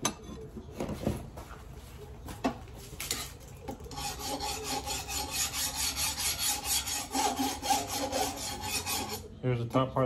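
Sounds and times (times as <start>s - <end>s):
file scraping along knife blade: 3.9s - 9.3s.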